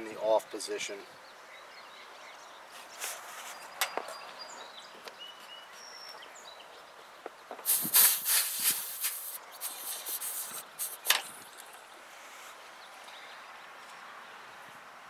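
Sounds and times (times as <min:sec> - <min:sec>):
refrigerant hissing: 0:07.6 - 0:11.2.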